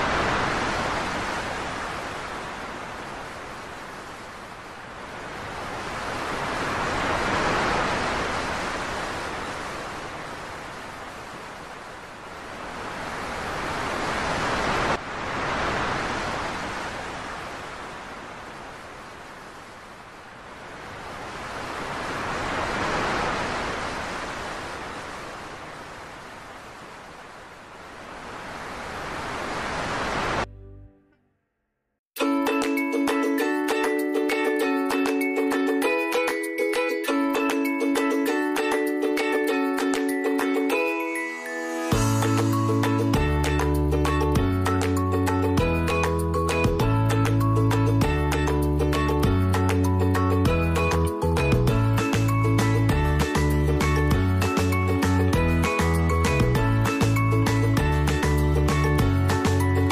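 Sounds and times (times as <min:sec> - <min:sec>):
ocean surf rushing: 0:00.0 - 0:30.5, 0:32.6 - 0:59.9.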